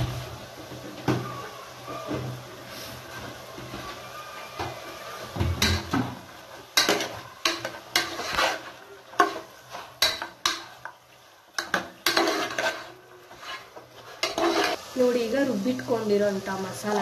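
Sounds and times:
metal ladle scraping a pot: 6.8s - 10.7s, 11.6s - 14.8s.

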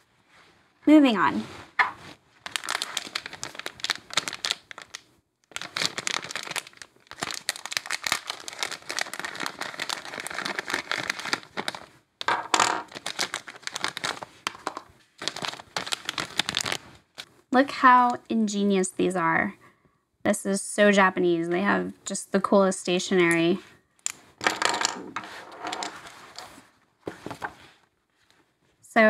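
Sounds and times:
plastic bag crinkling: 2.0s - 11.9s, 12.7s - 17.3s.

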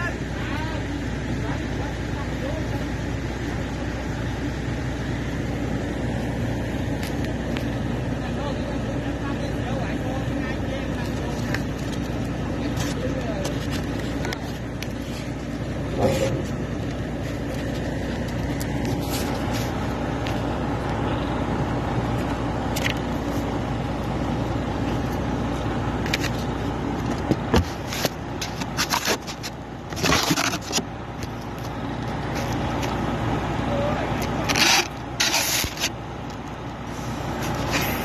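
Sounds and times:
diesel engine running: 0.0s - 38.0s
rubbing and scraping: 9.9s - 20.5s, 24.8s - 33.0s, 34.2s - 38.0s.

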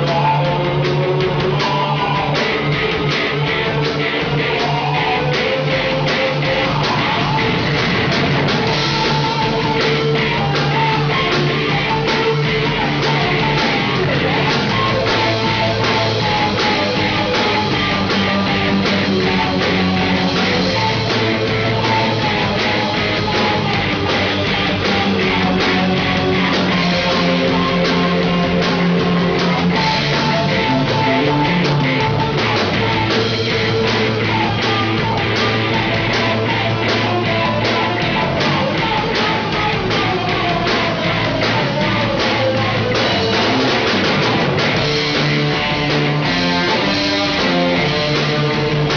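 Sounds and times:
drum kit beat: 0.0s - 48.9s
electric bass: 0.0s - 48.9s
electric guitars: 0.0s - 48.9s.

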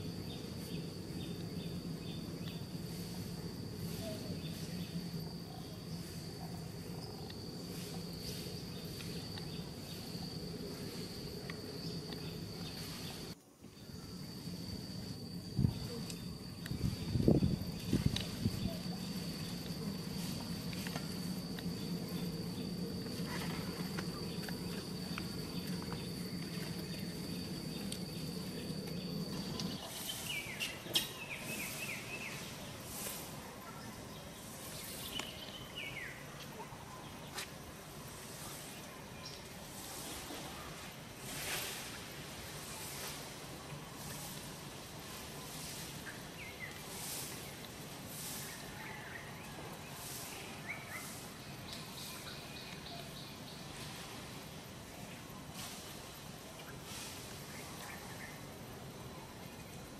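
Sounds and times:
low hum: 0.0s - 36.7s
insect trill: 0.0s - 59.9s.

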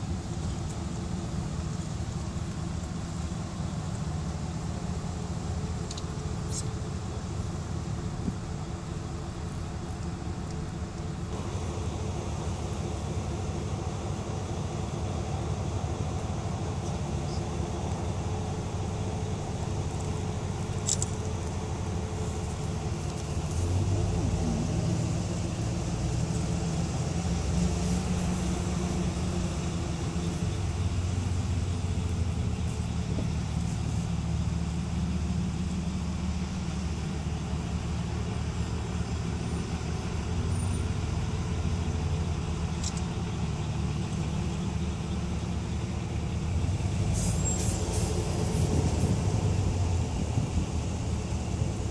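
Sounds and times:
car engine and road noise: 0.0s - 51.9s.

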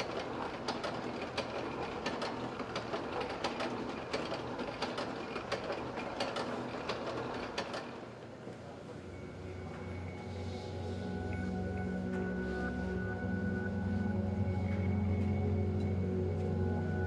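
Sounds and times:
rhythmic gear clicking: 0.0s - 8.0s
machine humming: 0.0s - 17.0s.

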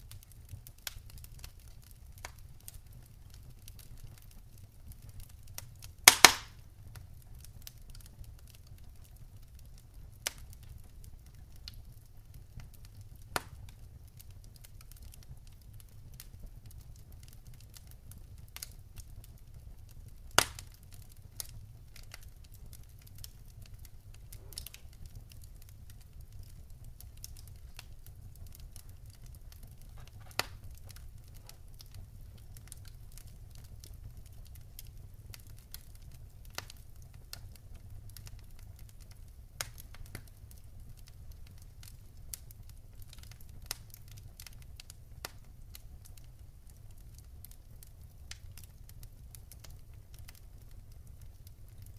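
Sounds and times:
campfire crackling and popping: 0.0s - 51.9s.

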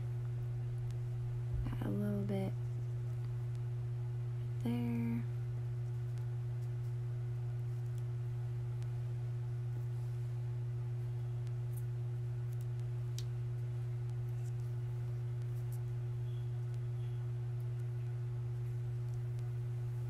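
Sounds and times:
low electrical hum: 0.0s - 20.0s
faint high steady tone: 16.0s - 17.4s.

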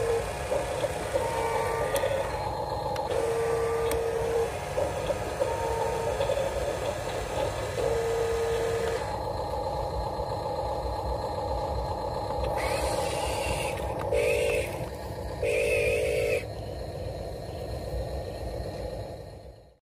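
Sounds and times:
toy truck electric motor whining: 0.0s - 9.3s, 11.0s - 16.6s.

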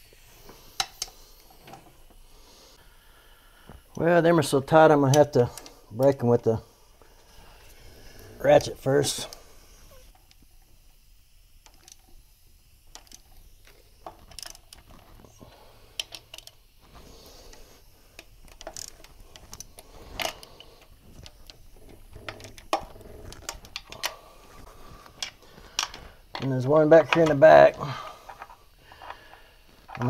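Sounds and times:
ratchet clicks: 0.7s - 1.6s, 11.6s - 12.2s, 12.9s - 15.2s, 15.9s - 16.6s, 18.2s - 24.2s.

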